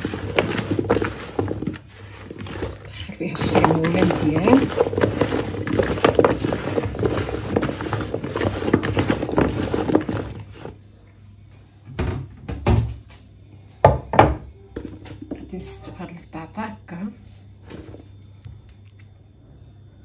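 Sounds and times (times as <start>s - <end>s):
wet rustling of potatoes in bowl: 0.0s - 10.8s, 17.6s - 18.2s.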